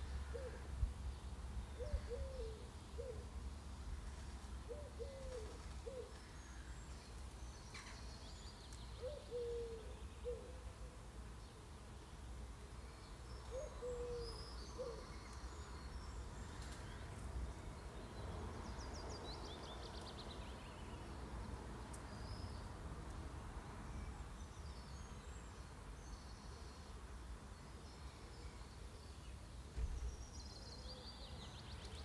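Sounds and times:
low hooting bird calls: 0.1 - 0.8, 1.7 - 3.3, 4.7 - 6.8, 9.0 - 11.0, 13.5 - 15.4
high birdsong chirps: 6.0 - 10.3, 12.1 - 32.0.

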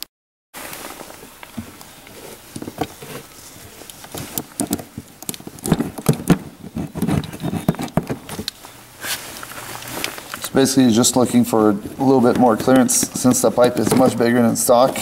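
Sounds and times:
hand tool cutting rubber: 5.3 - 8.3.

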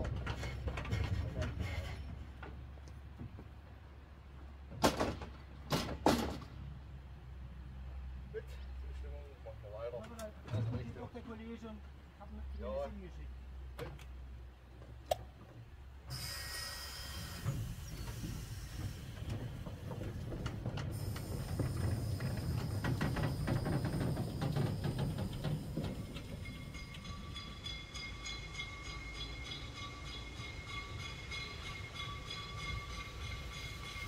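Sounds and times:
steam hissing: 16.1 - 20.2, 20.9 - 34.0
steam locomotive exhaust beats: 16.1 - 34.0
faint steady high tones: 26.4 - 34.0.

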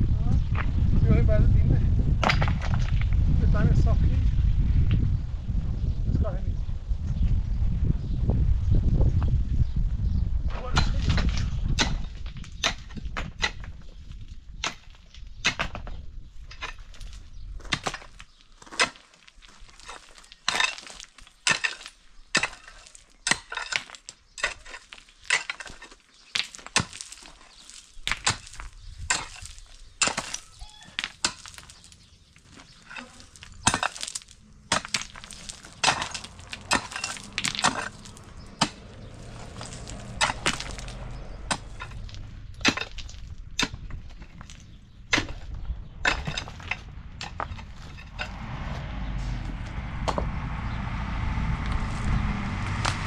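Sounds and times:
pickaxe striking stony ground: 2.2 - 3.0, 10.8 - 13.8, 14.6 - 40.9, 41.5 - 48.3
stones clinking and clattering: 16.5 - 48.3.

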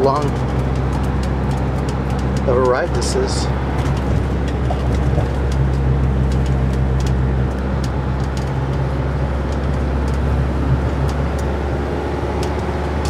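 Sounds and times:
bus engine drone and road noise: 0.0 - 13.0.

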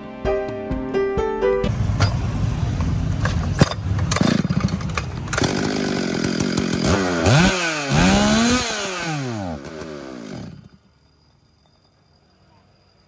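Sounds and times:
chainsaw engine revving: 4.1 - 10.8.

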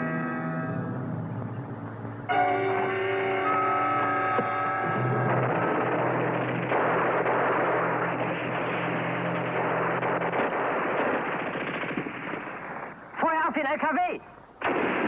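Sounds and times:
explosion roar: 1.1 - 12.8
crackling gunfire: 2.2 - 15.0.

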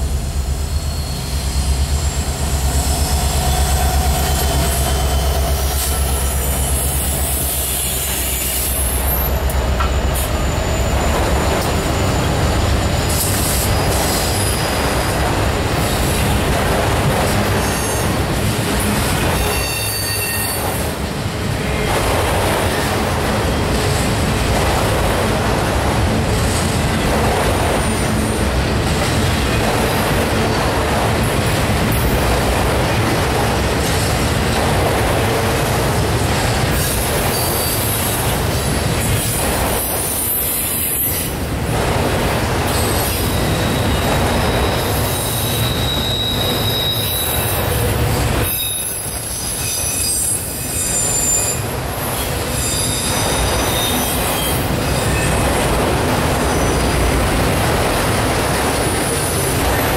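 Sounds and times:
freight train wheels rumbling on rail: 0.0 - 59.9
high wheel squeal: 0.7 - 14.8, 19.4 - 20.8, 36.8 - 38.2, 42.8 - 47.6, 48.4 - 55.5.

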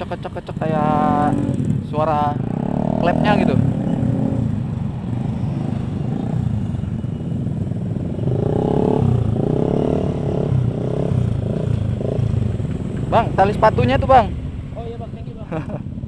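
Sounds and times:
motorcycle engines idling: 0.0 - 8.4, 10.2 - 16.0
motorcycle engine revs: 0.6 - 6.8, 7.5 - 14.1.

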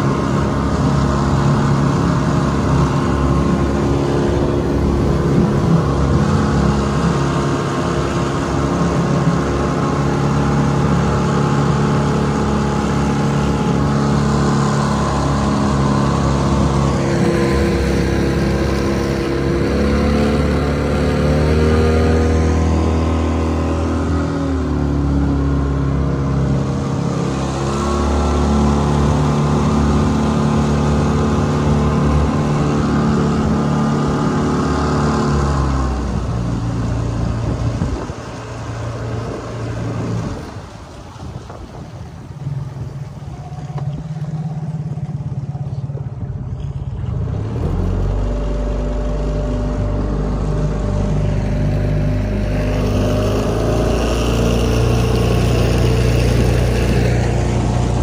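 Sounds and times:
outboard motor running: 0.0 - 58.0.

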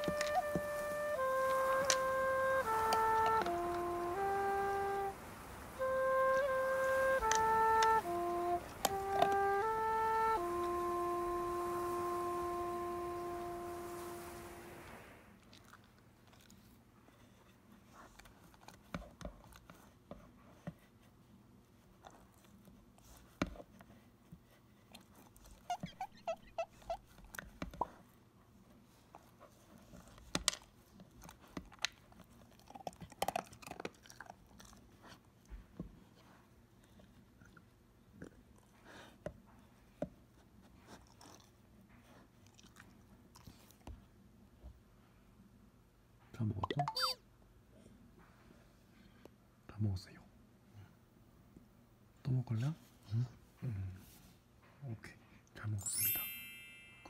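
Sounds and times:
dog chewing and crunching: 15.4 - 16.8, 29.6 - 36.3, 40.8 - 43.8.

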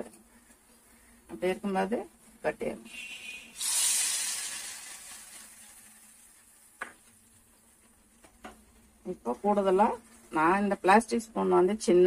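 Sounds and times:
hot ghee sizzling: 3.2 - 8.0.

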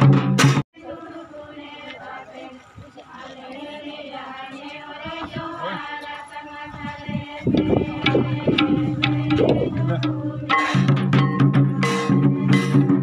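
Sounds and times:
drum beats: 0.0 - 0.6, 6.9 - 13.0
person singing: 7.0 - 13.0.

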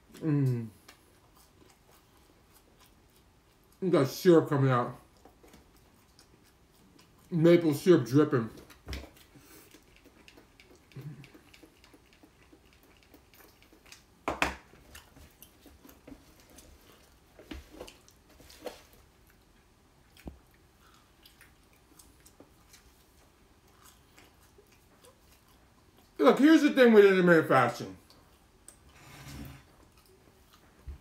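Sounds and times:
man chewing food: 0.0 - 3.9, 4.8 - 26.2, 27.9 - 31.0.

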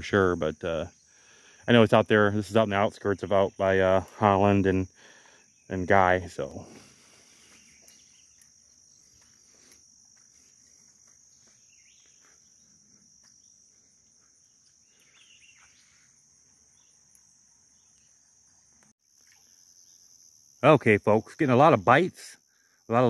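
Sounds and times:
high-pitched insect chorus: 0.0 - 23.0
faint ticks: 17.1 - 17.3.

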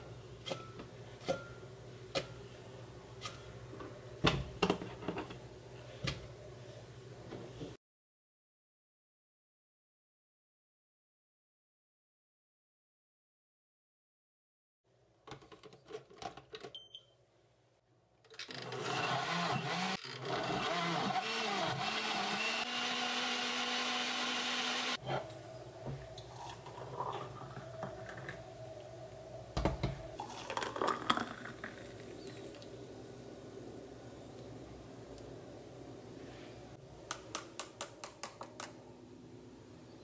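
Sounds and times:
blender motor running: 18.7 - 25.0.

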